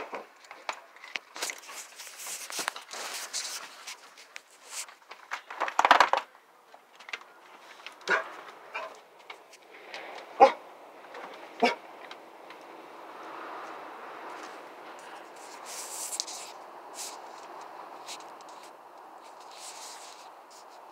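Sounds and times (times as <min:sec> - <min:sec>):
rustling and crackling: 0:00.0 - 0:20.9
dog barking: 0:08.0 - 0:09.0, 0:10.4 - 0:10.7, 0:11.6 - 0:11.9.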